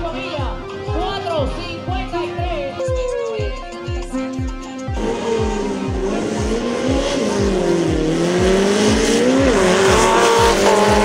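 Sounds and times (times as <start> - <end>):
background music bass beat: 0.0 - 11.0
engine revving hard: 5.0 - 11.0.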